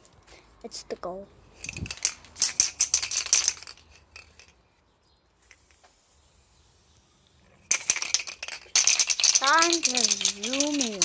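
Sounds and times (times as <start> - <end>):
spray can ball rattling: 1.6 - 4.6, 5.4 - 11.0.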